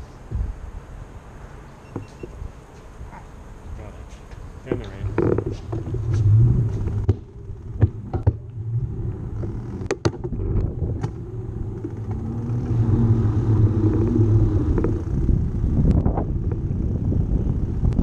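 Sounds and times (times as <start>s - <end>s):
sharp clicks and knocks: 4.3s - 8.6s, 9.4s - 11.2s
bicycle tyre and wind rumble: 4.4s - 18.0s.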